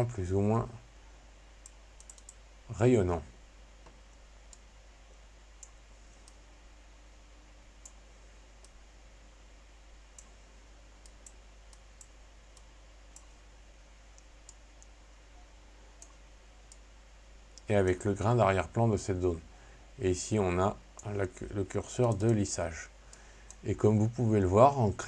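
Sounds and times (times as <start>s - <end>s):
computer mouse clicks: 1.6s - 2.4s, 3.8s - 4.7s, 5.6s - 6.4s, 7.8s - 8.0s, 11.0s - 13.4s, 14.1s - 15.0s, 16.0s - 16.8s, 22.0s - 22.4s.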